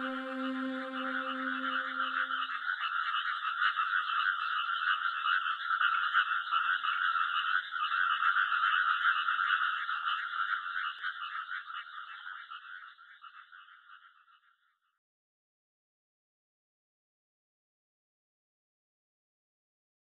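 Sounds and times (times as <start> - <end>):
soft background music: 0.0 - 2.4
frogs calling in chorus: 0.0 - 14.4.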